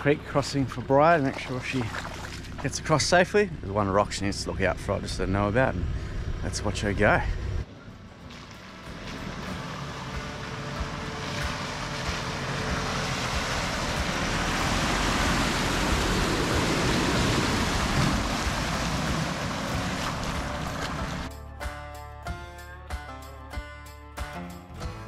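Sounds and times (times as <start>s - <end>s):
tyres splashing through mud and water: 0.0s - 5.2s, 7.6s - 21.3s
vehicle engine running: 0.0s - 21.3s.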